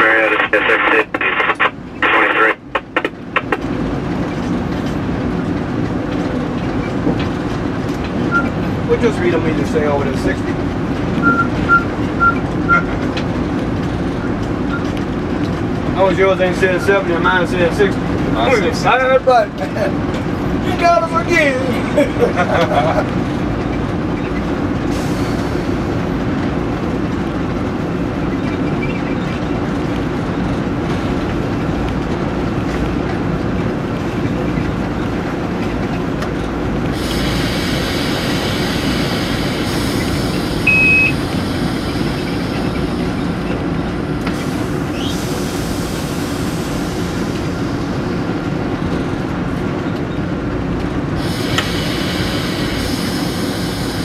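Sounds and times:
locomotive engine and wheels rumbling: 0.0s - 54.0s
high hissing wheel noise: 37.0s - 43.4s, 44.4s - 48.1s, 51.2s - 54.0s
short beep: 40.6s - 41.2s.

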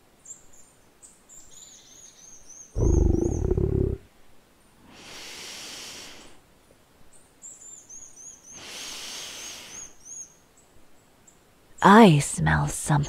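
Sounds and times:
small birds chirping: 0.2s - 4.0s, 7.1s - 11.8s
large creature hissing breaths: 2.8s - 4.0s, 4.9s - 6.4s, 8.5s - 10.0s.

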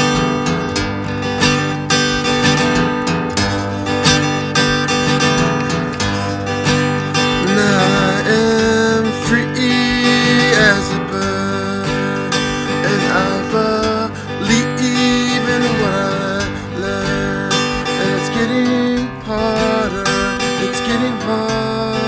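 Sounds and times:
acoustic guitar strumming: 0.0s - 22.0s
person singing long notes: 6.1s - 22.0s.

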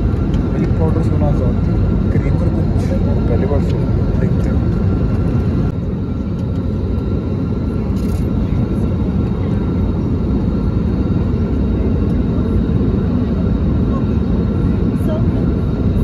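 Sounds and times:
jet engines low rumble: 0.0s - 16.0s.

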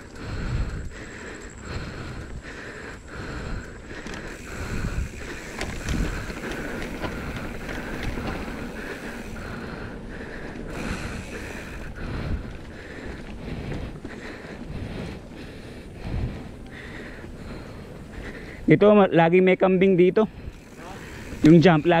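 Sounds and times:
wind buffeting microphone: 0.0s - 18.7s
tyres rumbling over dirt: 3.8s - 15.3s
bike knocks and rattles: 4.0s - 9.0s.

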